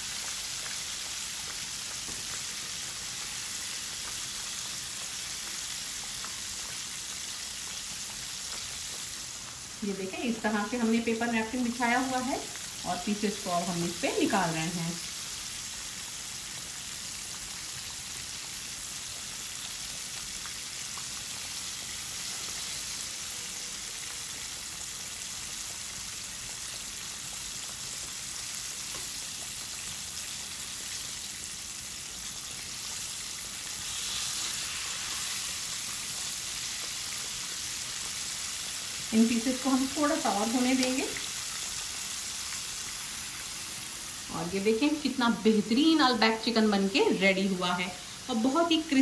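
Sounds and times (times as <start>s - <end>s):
chicken deep-frying in oil: 0.0s - 49.0s.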